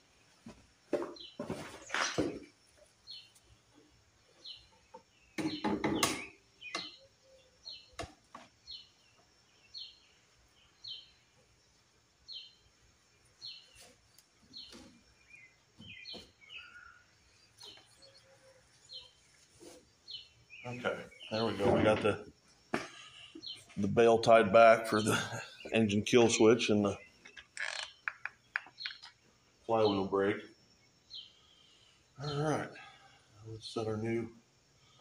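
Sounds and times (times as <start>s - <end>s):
bird chirping: 1.0s - 34.2s
loud knocks and clatter: 5.4s - 6.3s.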